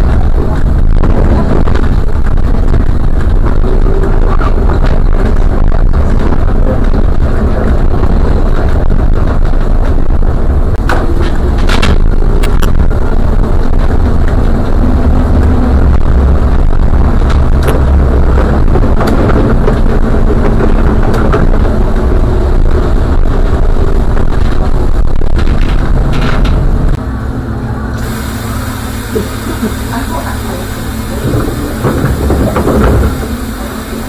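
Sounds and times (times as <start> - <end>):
road and tyre rumble: 0.0 - 34.0
faint hum: 10.1 - 34.0.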